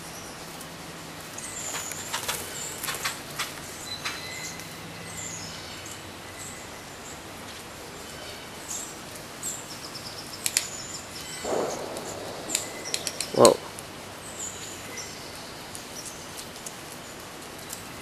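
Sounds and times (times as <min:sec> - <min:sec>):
small birds chirping: 0:00.0 - 0:18.0
woodpecker tapping on bark: 0:11.5 - 0:15.0.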